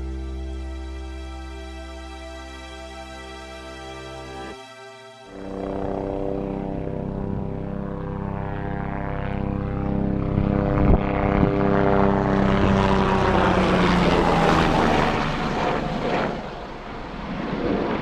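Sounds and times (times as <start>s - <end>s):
helicopter flying past: 5.3s - 18.0s.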